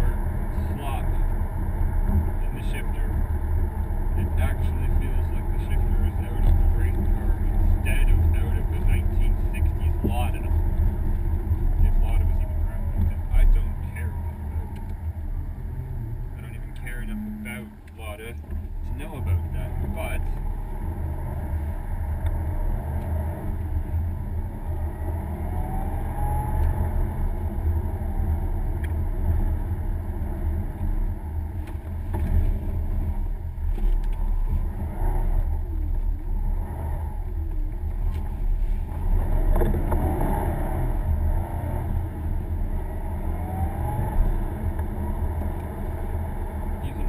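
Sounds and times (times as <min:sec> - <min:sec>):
car engine and tyre noise: 0:00.0 - 0:47.0.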